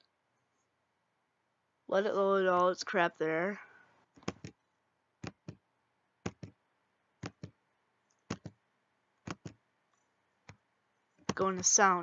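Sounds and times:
computer mouse clicks: 4.1 - 4.6, 6.2 - 6.6, 7.2 - 8.6, 9.2 - 10.6.

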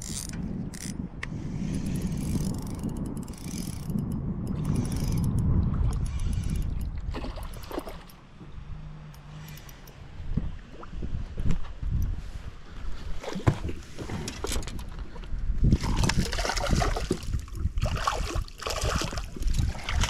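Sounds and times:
fishing reel clicking: 0.0 - 1.0, 1.6 - 8.2, 9.1 - 10.0
steady low rumble: 0.0 - 12.8.

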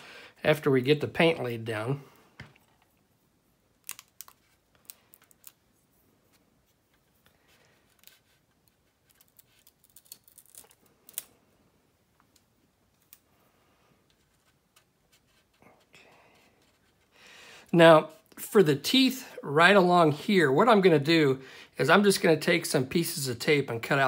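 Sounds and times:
masking tape clicks and crinkles: 3.8 - 5.6, 7.2 - 11.4.

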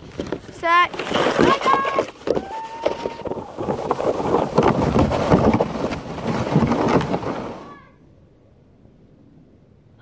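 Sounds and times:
sled scraping down snow: 0.0 - 7.9.

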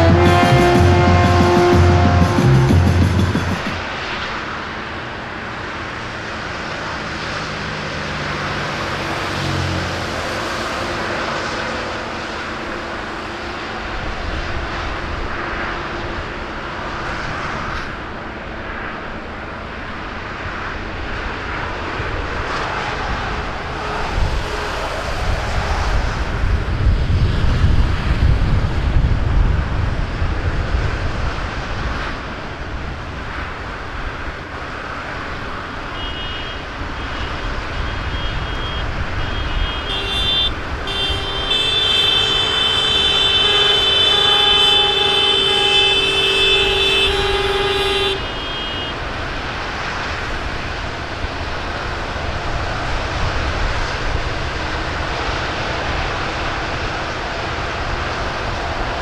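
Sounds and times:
long horn blast: 0.0 - 3.9, 35.9 - 49.2
tractor engines rumbling: 0.0 - 59.0
tyres on road: 0.0 - 59.0.

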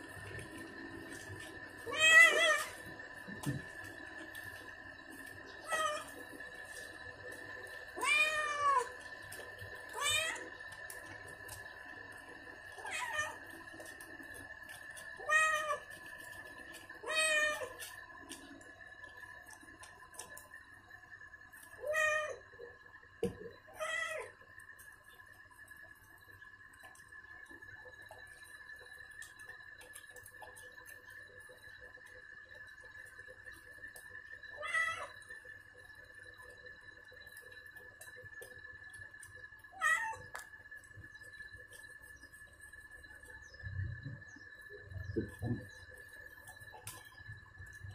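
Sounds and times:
cat meowing: 1.9 - 2.8, 5.6 - 6.2, 8.0 - 8.9, 9.9 - 10.5, 12.8 - 13.4, 15.2 - 15.9, 17.0 - 17.8, 21.8 - 22.4, 23.7 - 24.3, 34.6 - 35.2, 39.8 - 40.2.

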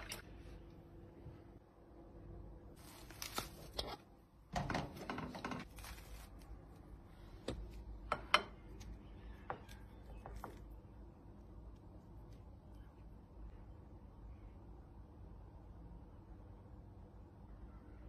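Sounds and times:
bread crust tearing and crackling: 2.8 - 3.9, 5.6 - 7.0.

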